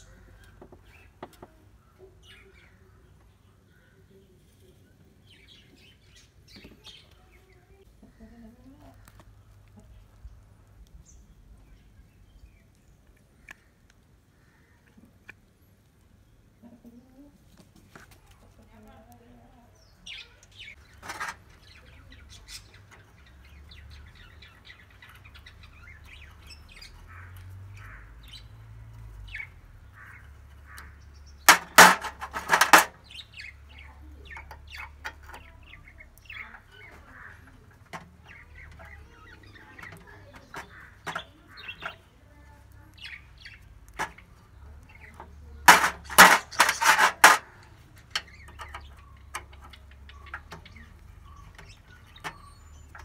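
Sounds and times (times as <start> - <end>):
faint bird chirps: 48.2 - 53.0.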